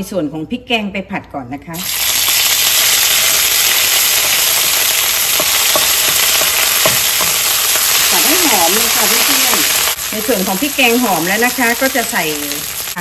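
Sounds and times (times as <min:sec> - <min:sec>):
paste sizzling in hot oil: 0:01.8 - 0:13.0
spatula tapping pan: 0:04.0 - 0:09.9.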